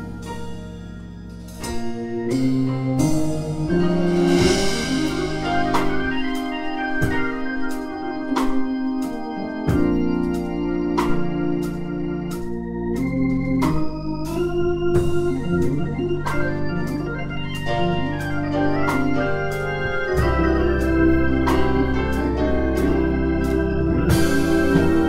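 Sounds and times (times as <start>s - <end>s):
keyboards: 0.0s - 25.0s
organ chords: 0.0s - 25.0s
drum and cymbal hits: 1.4s - 8.7s, 24.1s - 25.0s.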